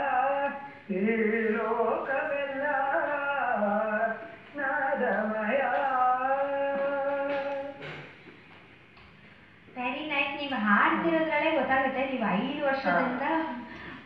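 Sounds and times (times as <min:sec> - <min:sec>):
person singing over a telephone: 0:00.0 - 0:07.8.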